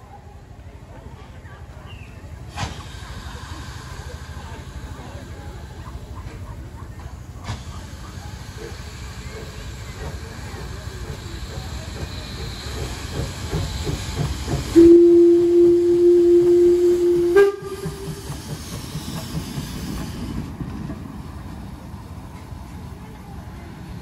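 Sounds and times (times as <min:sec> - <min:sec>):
steam locomotive exhaust beats: 0:01.6 - 0:24.0
steam hissing: 0:01.9 - 0:23.0
steam whistle blast: 0:14.8 - 0:18.3.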